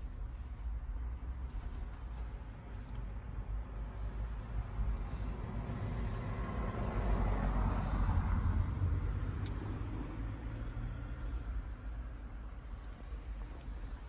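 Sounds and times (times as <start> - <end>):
vehicle passing by: 5.0 - 11.7.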